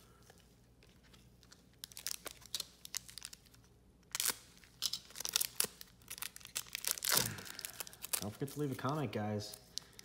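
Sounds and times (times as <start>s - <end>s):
foil wrapper crinkling: 1.5s - 10.0s.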